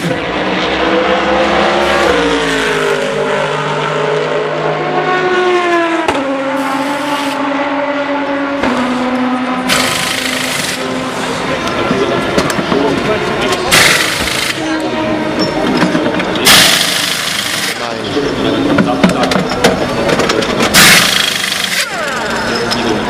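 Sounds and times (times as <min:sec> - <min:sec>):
race car engines idling: 0:08.5 - 0:23.0.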